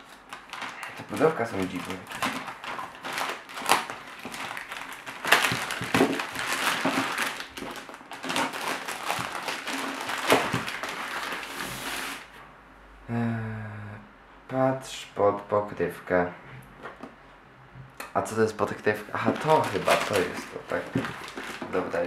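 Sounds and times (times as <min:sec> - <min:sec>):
plastic mailer bag crinkling: 0:00.0 - 0:12.3, 0:19.1 - 0:22.0.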